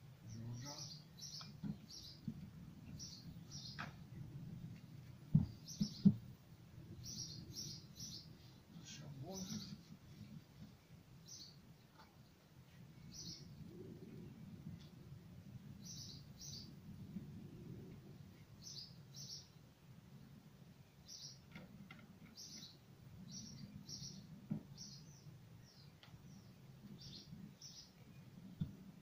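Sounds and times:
low background rumble: 0.0 - 9.4, 10.0 - 21.2
faint bird chirping: 0.2 - 21.6, 22.2 - 29.0.

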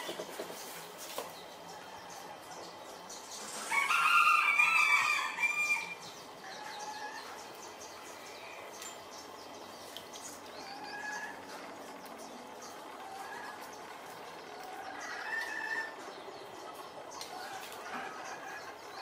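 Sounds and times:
rooster crowing: 3.6 - 6.0.

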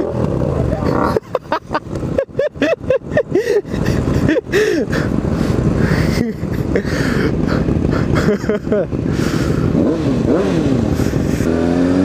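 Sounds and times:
motorcycle engines running: 0.0 - 12.0
motorcycle throttle blips: 1.8 - 2.2.

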